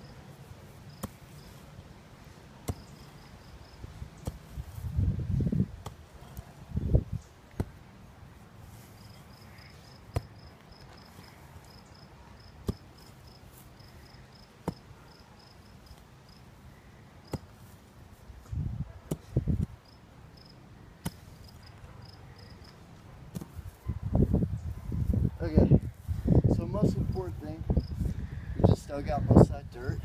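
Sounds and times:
mattock chopping into sod: 0:00.9 - 0:01.4, 0:02.6 - 0:03.0, 0:04.2 - 0:04.8, 0:05.8 - 0:06.0, 0:07.5 - 0:07.8, 0:10.1 - 0:10.5, 0:12.6 - 0:13.1, 0:14.6 - 0:14.9, 0:17.3 - 0:17.6, 0:19.1 - 0:19.7, 0:21.0 - 0:21.3, 0:23.3 - 0:23.6.

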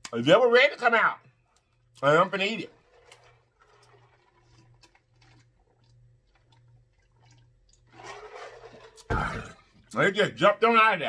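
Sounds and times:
person gulping a drink: 0:03.0 - 0:09.9.

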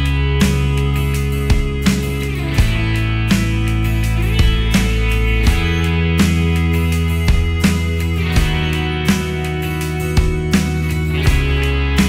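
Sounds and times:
instrumental music with guitar and beat: 0:00.0 - 0:12.0.

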